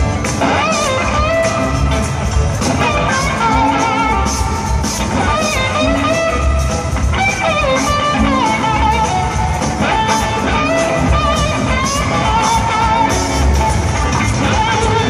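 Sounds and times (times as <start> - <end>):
bass and drums: 0.0 - 15.0
electric guitar lead line: 0.0 - 15.0.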